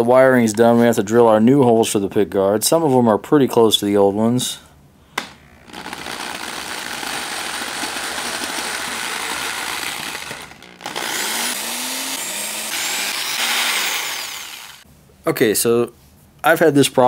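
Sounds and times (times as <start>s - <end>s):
electric drill boring wood: 5.6s - 14.8s.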